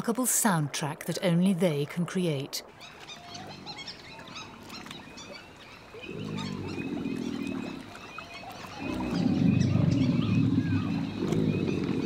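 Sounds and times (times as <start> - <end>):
alligator bellowing: 5.9 - 12.0.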